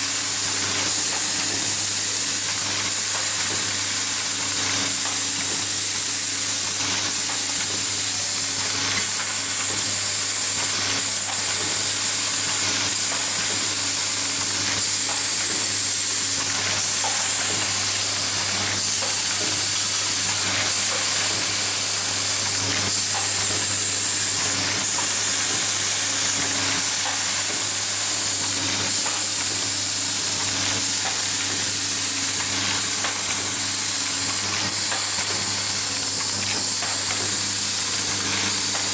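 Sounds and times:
machine hiss and hum: 0.0s - 38.9s.

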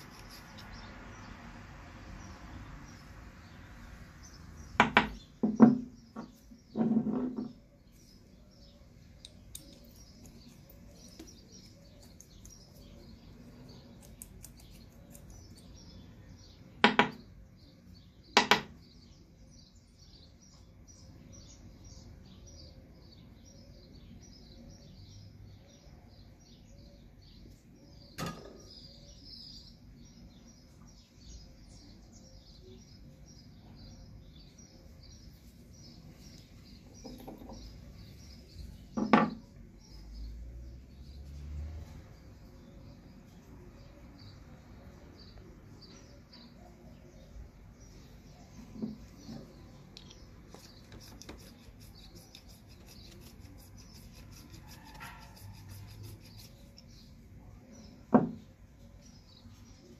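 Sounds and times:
small birds chirping: 0.0s - 59.9s
tool knocking on wooden bench: 4.8s - 7.6s, 16.8s - 17.2s, 18.4s - 18.7s, 39.0s - 39.4s, 58.1s - 58.4s.

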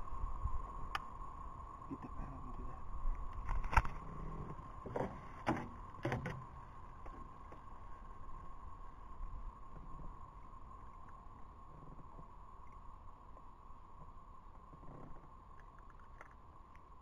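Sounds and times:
faint steady tone: 0.0s - 17.0s
hollow knocks in aluminum boat: 4.8s - 7.6s.

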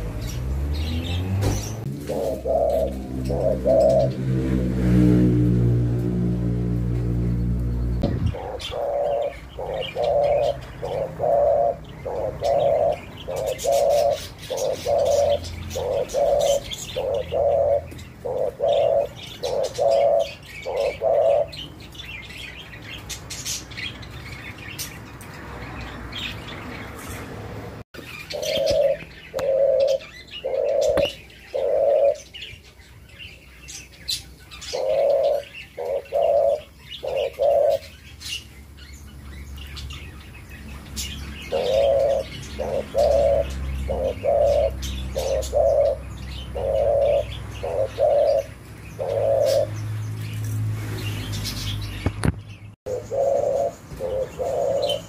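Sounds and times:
dove cooing: 1.6s - 7.0s, 7.9s - 21.6s, 28.1s - 32.5s, 34.6s - 38.0s, 41.3s - 49.8s, 52.9s - 55.0s.

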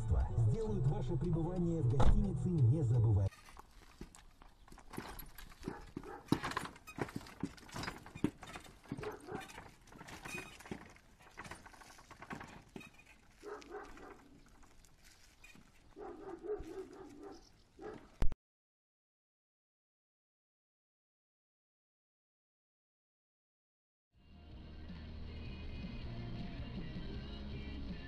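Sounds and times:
wooden cart rattling: 3.3s - 17.4s
horse hooves clip-clopping on pavement: 3.6s - 18.1s.

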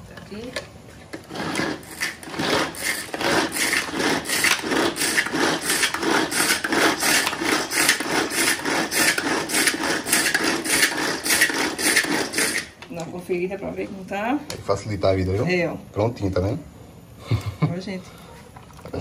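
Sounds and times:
pull-cord food chopper whirring: 1.1s - 12.8s.

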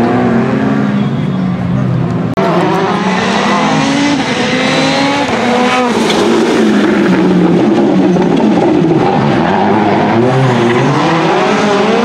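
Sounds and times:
car engine revving: 1.8s - 12.0s.

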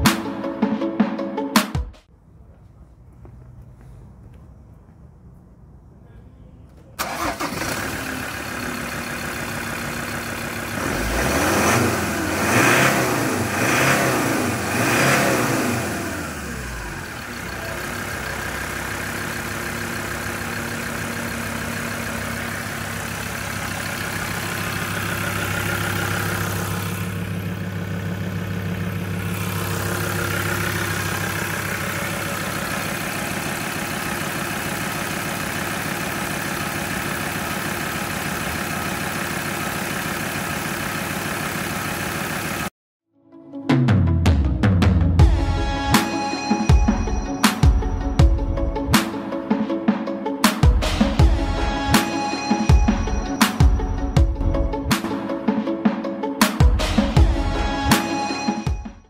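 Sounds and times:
diesel engine starting and idling: 2.2s - 42.7s, 50.7s - 55.3s, 56.6s - 59.0s
engine revving: 7.0s - 42.7s.

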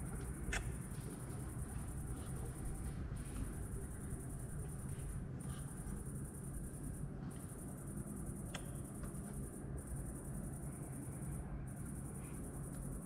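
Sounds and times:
crickets chirring: 0.0s - 13.0s
faint click: 8.5s - 9.2s.

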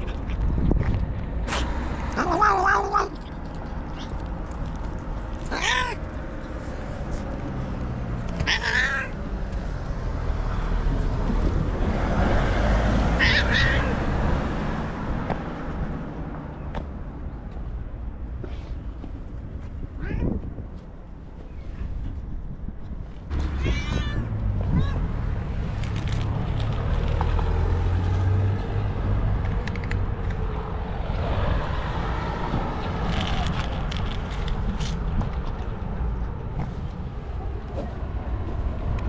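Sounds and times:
cat meowing: 2.2s - 3.3s, 5.5s - 6.1s, 8.4s - 9.2s, 13.2s - 14.0s, 20.0s - 20.4s, 23.5s - 25.0s.

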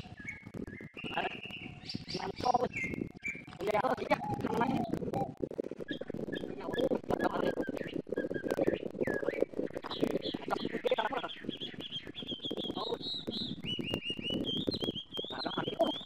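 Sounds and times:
small bird chirping: 0.0s - 16.0s.

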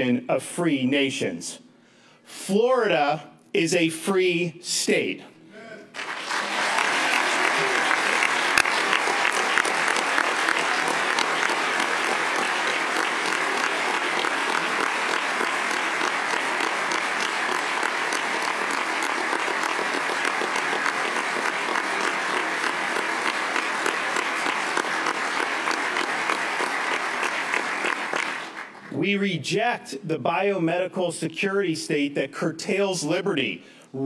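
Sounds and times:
crowd applause: 5.9s - 29.0s.

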